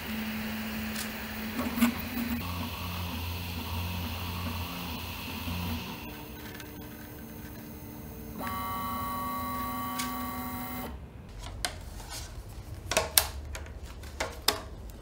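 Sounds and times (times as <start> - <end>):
stepper motors whining: 0.0 - 11.0.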